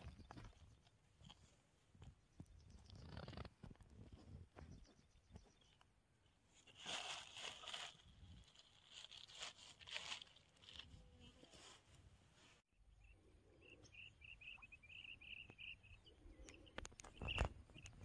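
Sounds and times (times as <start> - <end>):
plastic sack crinkling: 6.7 - 11.0.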